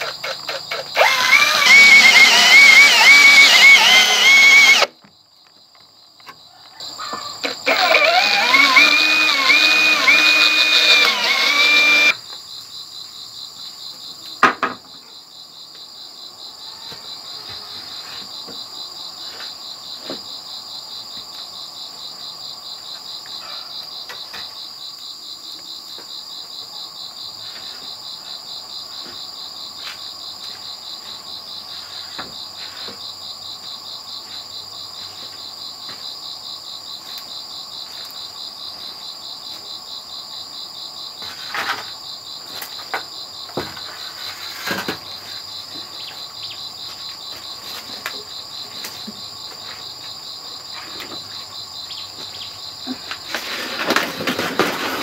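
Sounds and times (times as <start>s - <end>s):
power drill whining: 0.0s - 4.9s, 7.4s - 12.2s
pulsing insect chorus: 0.0s - 55.0s.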